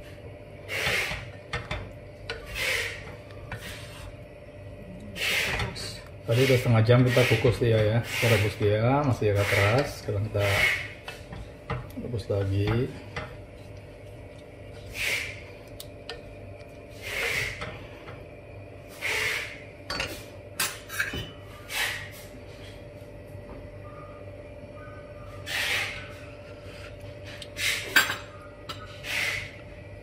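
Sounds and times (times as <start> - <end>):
faint steady hum: 0.0 - 30.0
wooden spoon scraping pot: 2.4 - 4.1, 5.2 - 11.3.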